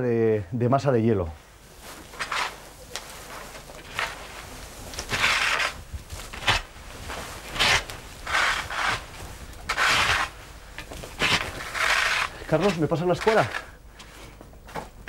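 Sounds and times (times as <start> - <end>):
pitchfork raking dry leaves: 2.1 - 2.6, 3.2 - 10.4, 11.0 - 13.7.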